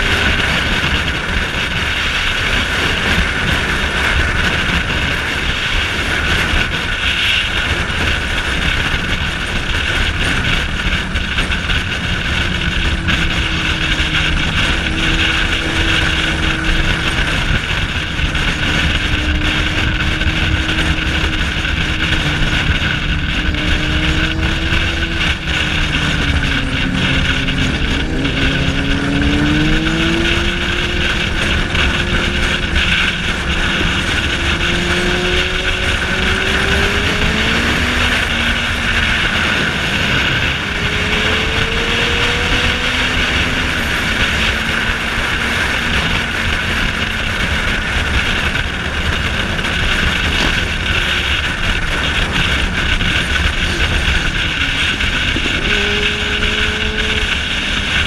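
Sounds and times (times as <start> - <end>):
motorcycle engine running: 0.0 - 58.0
road noise: 0.0 - 58.0
wind rush: 0.0 - 58.0.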